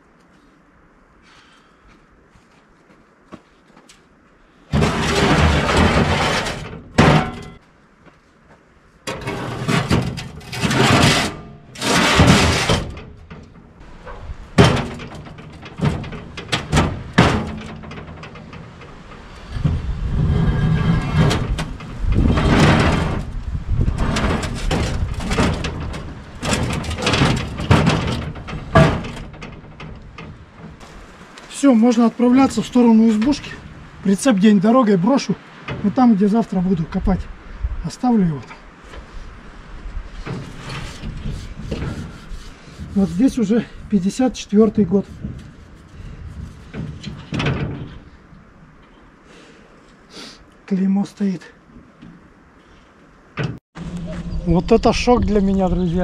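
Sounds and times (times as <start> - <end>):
steel rails thudding and knocking: 4.7 - 7.7, 9.0 - 37.1, 40.0 - 48.9, 53.2 - 53.6.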